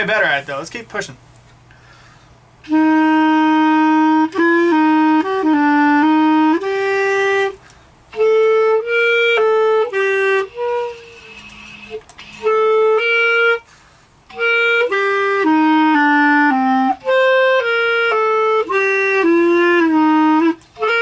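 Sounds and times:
clarinet playing single notes: 2.6s - 21.0s.

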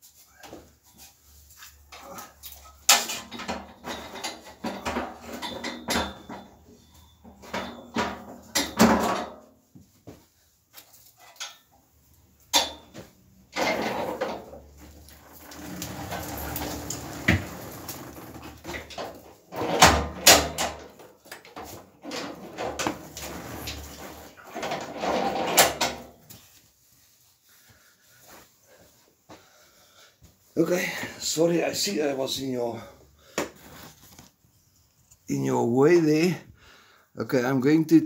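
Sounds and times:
metal frame clattering: 2.7s - 9.5s, 12.5s - 26.2s
generator rolling on wheels: 13.4s - 21.0s, 21.6s - 26.0s.

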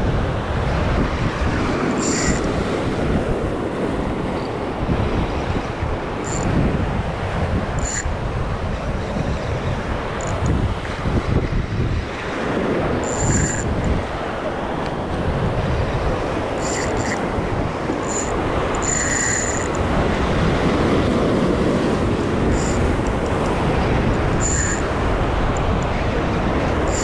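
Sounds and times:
wind buffeting microphone: 0.0s - 27.0s
high-pitched buzzes: 2.0s - 2.5s, 6.2s - 6.6s, 7.8s - 8.1s, 13.0s - 13.9s, 16.6s - 17.3s, 18.0s - 19.8s, 22.4s - 23.3s, 24.3s - 25.0s.

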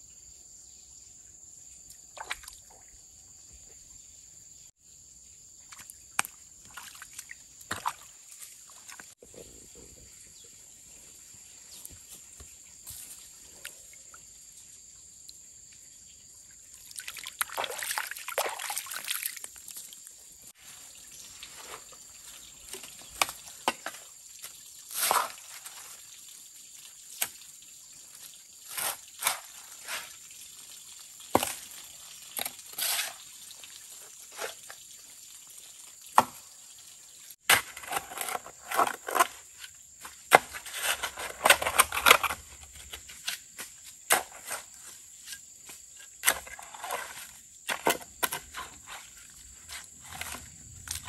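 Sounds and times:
hand hoe digging wet mud: 22.7s - 25.8s, 28.6s - 30.2s, 31.3s - 31.8s, 37.5s - 51.0s.

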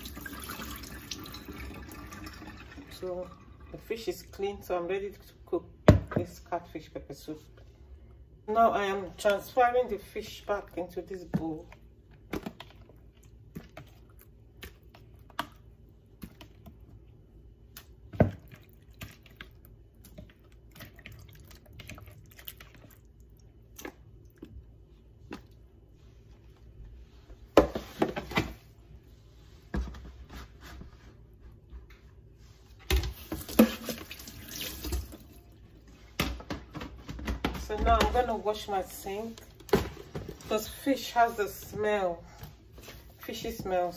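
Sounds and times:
tap water running and splashing: 0.0s - 3.8s, 33.0s - 35.4s.

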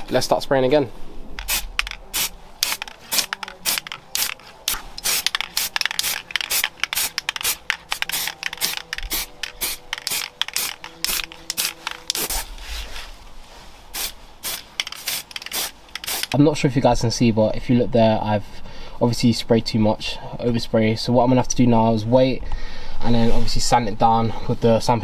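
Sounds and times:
aerosol spray bursts: 1.4s - 12.5s, 13.9s - 16.4s.

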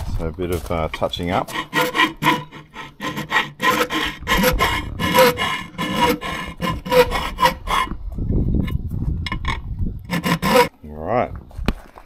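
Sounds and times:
hand file rasping on metal: 1.0s - 7.9s, 9.3s - 10.7s.

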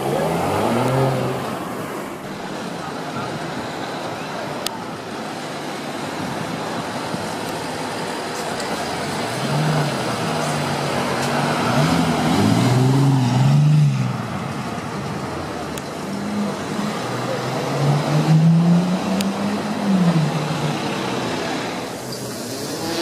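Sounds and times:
car engine revving: 0.0s - 1.8s, 8.6s - 14.6s, 15.2s - 23.0s
street traffic noise: 0.0s - 23.0s.

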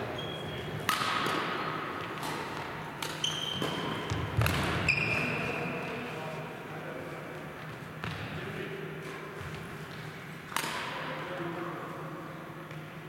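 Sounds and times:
shoes squeaking on floor: 0.0s - 0.8s, 3.1s - 6.0s
racket striking shuttlecock: 0.7s - 4.9s, 10.5s - 11.0s.

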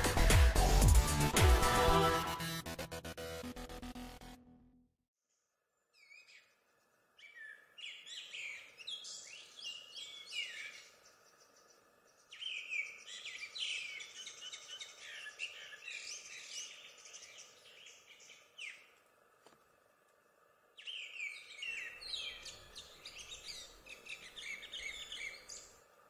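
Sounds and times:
songbird chirping: 5.3s - 19.5s, 20.7s - 26.0s
faint outdoor background noise: 5.4s - 26.0s.

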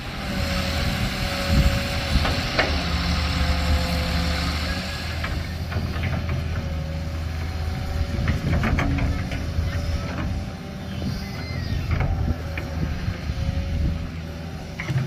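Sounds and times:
excavator diesel engine running: 0.0s - 15.0s
excavator bucket clanking: 8.1s - 10.4s.

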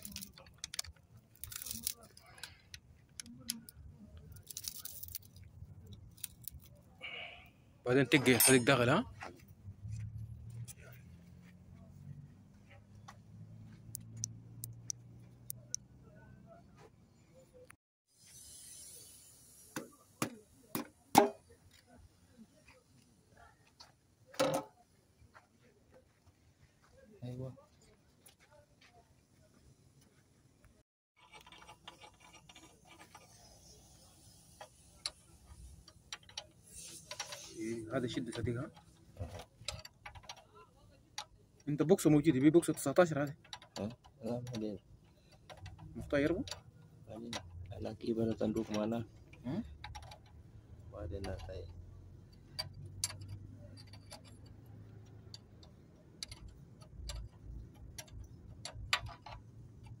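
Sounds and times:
faint metal clicks and scrapes: 0.0s - 7.3s, 8.0s - 26.9s, 31.2s - 60.0s.

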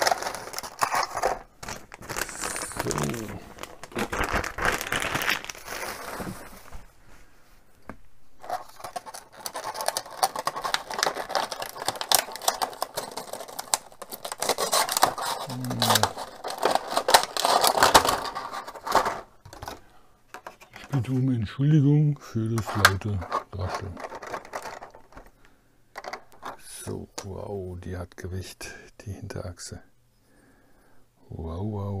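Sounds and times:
plastic packaging crinkling: 0.0s - 6.9s, 8.4s - 19.8s, 22.6s - 25.4s.

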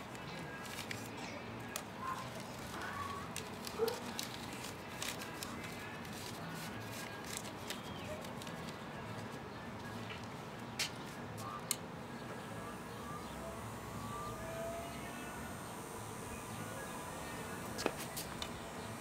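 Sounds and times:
paper rustling: 0.1s - 9.4s.

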